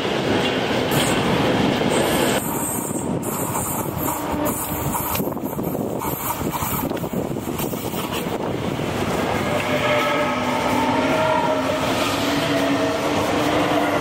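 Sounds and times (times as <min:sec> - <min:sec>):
diesel locomotive rumble: 0:00.0 - 0:14.0
train wheels rolling over rails: 0:00.0 - 0:14.0.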